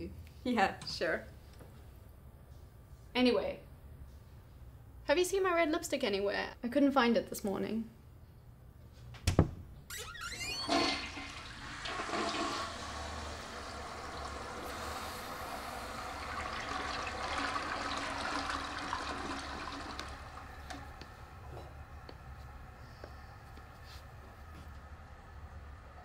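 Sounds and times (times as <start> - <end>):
water rushing: 10.7 - 20.6.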